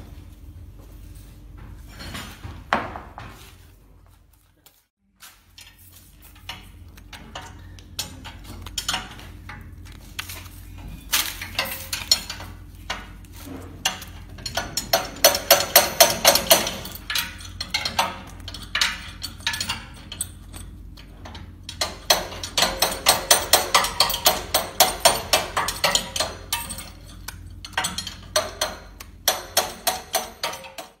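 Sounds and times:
metallic tapping and clinking: 11.1s - 13.2s, 13.8s - 31.0s
hand tools knocking on metal: 11.3s - 31.0s.

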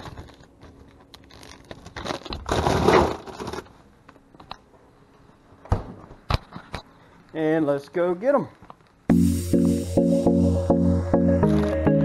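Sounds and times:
plastic bag crinkling: 0.0s - 3.9s.

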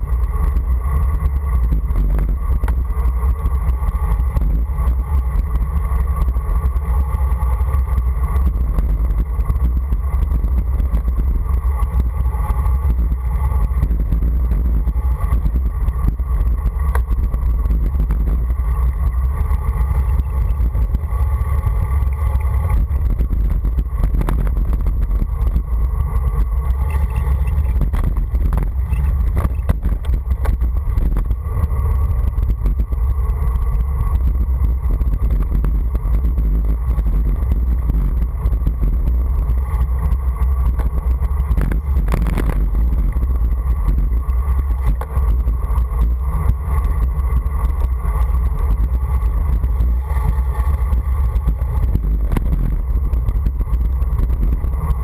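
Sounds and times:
tyres rumbling on asphalt: 0.0s - 55.0s
wind buffeting microphone: 0.0s - 55.0s.

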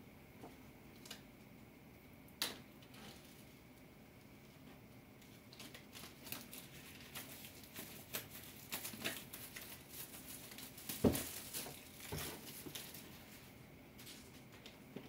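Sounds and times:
packaging crinkling and rustling: 5.2s - 15.0s.

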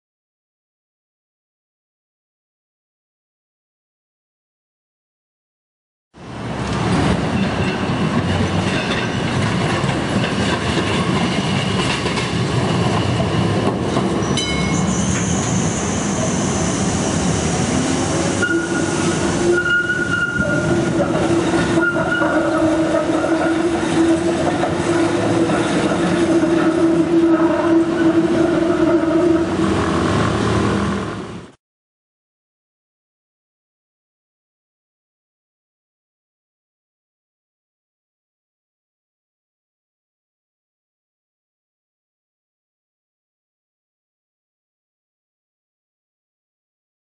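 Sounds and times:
tram motor hum: 6.2s - 31.6s
tram rolling on rails: 6.2s - 31.6s
high wheel squeal: 14.2s - 30.0s.

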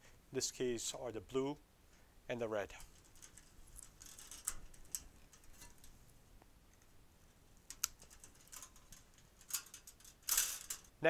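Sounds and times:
wire strippers snipping wire: 2.8s - 5.9s, 7.7s - 10.9s.

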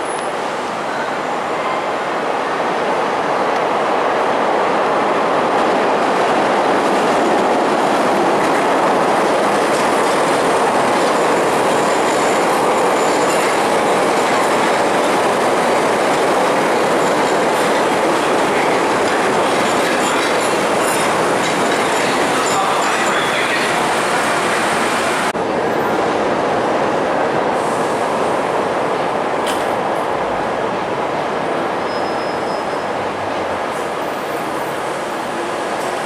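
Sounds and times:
train wheels rumbling on rails: 2.9s - 36.0s
high wheel squeal: 31.8s - 32.9s.

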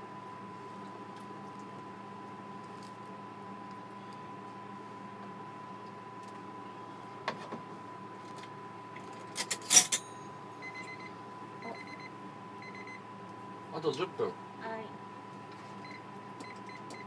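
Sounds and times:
faint electrical hum: 0.0s - 17.0s
utensils clattering against glass cup: 9.2s - 10.2s.

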